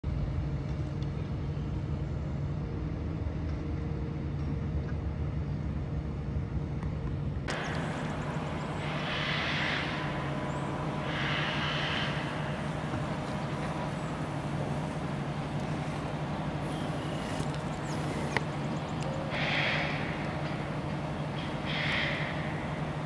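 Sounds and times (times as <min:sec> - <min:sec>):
low engine rumble: 0:00.0 - 0:23.0
hissy swells: 0:07.5 - 0:23.0.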